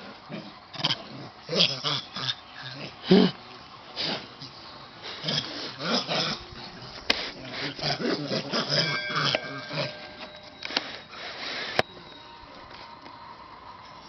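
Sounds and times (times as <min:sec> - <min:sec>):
dog vocalizing: 0:04.0 - 0:10.3.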